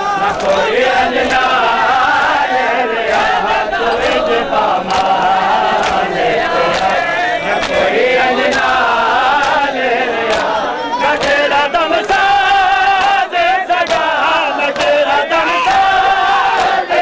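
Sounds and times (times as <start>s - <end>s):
men chanting a lament in unison: 0.0s - 17.0s
chest-beating slaps: 3.1s - 8.8s, 9.4s - 12.2s.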